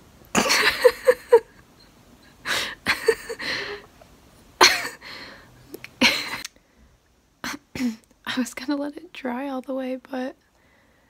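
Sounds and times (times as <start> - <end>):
woman laughing breathily: 0.4 - 4.0, 4.6 - 5.4, 6.0 - 6.4
woman gasping: 2.4 - 3.9, 5.0 - 5.5.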